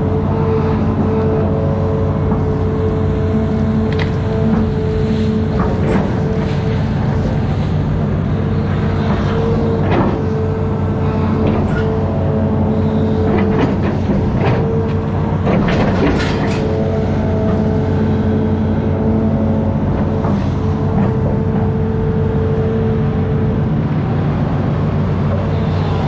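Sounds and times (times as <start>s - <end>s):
diesel engine under load: 0.0s - 26.0s.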